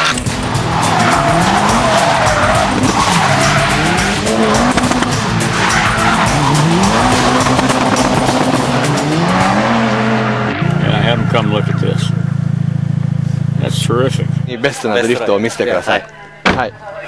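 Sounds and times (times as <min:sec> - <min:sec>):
car engine revving: 0:00.0 - 0:14.5
tyres squealing: 0:00.4 - 0:09.4.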